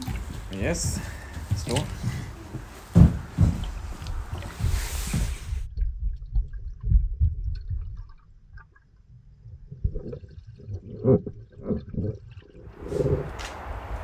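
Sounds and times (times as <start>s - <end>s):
water splash: 0.0s - 2.1s
muffled underwater rumbling: 3.5s - 13.8s
bubbles gurgling: 3.7s - 13.3s.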